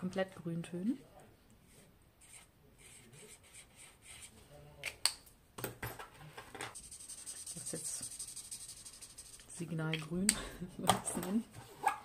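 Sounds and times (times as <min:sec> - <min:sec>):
marker scratching on paper: 0:02.2 - 0:04.3, 0:06.8 - 0:09.7.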